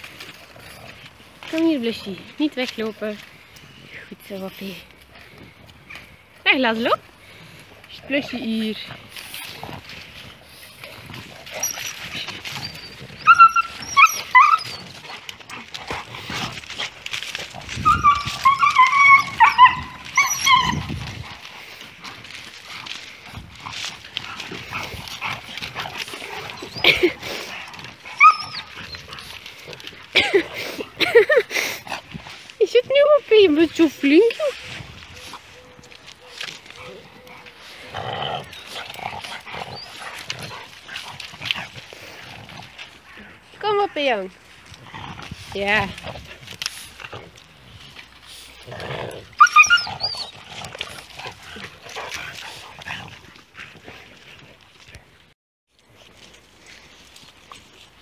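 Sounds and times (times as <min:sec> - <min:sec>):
dogs scuffling: 0:00.0 - 0:55.2
dog whining and yipping: 0:11.5 - 0:15.2, 0:17.7 - 0:21.2, 0:26.3 - 0:27.2, 0:28.1 - 0:29.2, 0:49.4 - 0:50.4.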